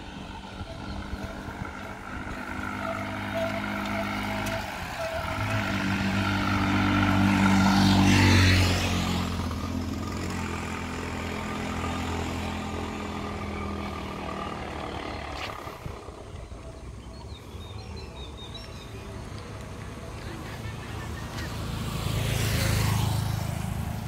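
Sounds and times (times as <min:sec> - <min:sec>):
vehicle passing: 0:00.0 - 0:16.8, 0:19.0 - 0:24.0.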